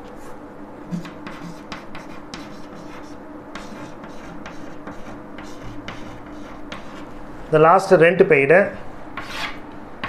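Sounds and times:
chalk tapping and scratching on blackboard: 0.9s - 7.1s, 9.2s - 9.6s.

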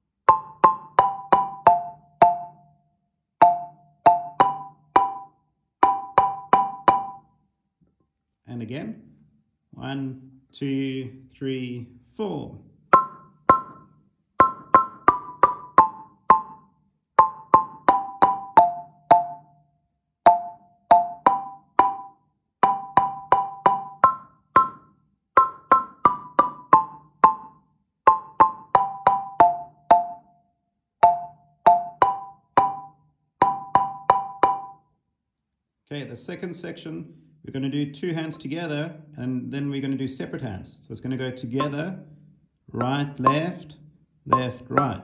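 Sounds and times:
marimba double notes: 0.3s - 2.7s, 3.4s - 7.3s, 12.9s - 19.6s, 20.3s - 24.8s, 25.4s - 30.3s, 31.0s - 34.9s, 41.5s - 45.0s.

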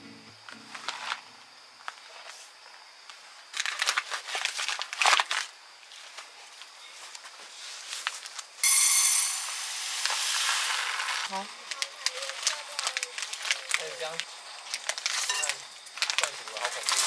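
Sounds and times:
plastic packaging crinkling: 3.5s - 6.2s, 10.0s - 17.0s
rice pouring into a pot: 8.7s - 11.4s.

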